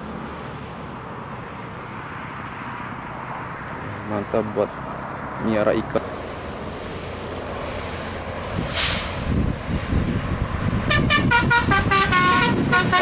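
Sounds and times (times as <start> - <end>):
bus engine and tyre rumble: 0.0 - 13.0
brief hiss: 8.6 - 9.6
multi-tone air horn blasts: 10.9 - 13.0.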